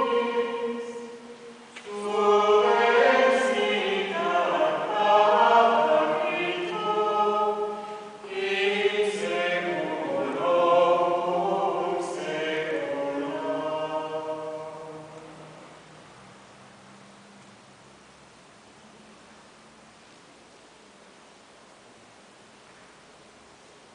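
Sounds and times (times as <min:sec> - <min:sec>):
mixed choir singing chant: 0:00.0 - 0:15.8.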